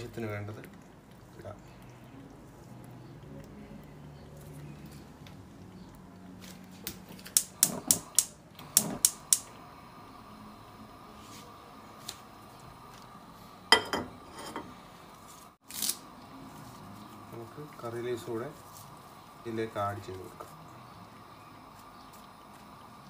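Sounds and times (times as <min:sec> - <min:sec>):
kitchenware clicking and clinking: 0:13.7 - 0:14.8.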